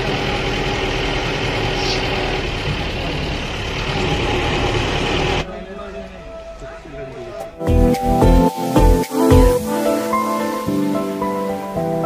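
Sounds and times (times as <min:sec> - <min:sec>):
bus engine hum: 0:00.0 - 0:07.6
road noise: 0:00.0 - 0:12.0.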